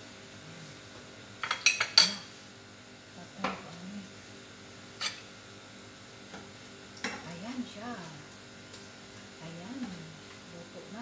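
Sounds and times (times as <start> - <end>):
utensils clinking on dishes: 1.4 - 2.3, 5.0 - 5.3.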